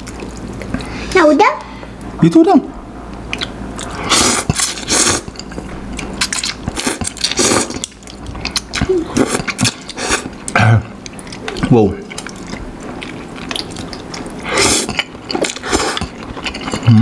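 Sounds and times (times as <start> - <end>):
wet mouth clicks and chewing: 3.1 - 16.9
person slurping noodles: 3.9 - 5.3, 6.7 - 7.8, 14.4 - 17.0.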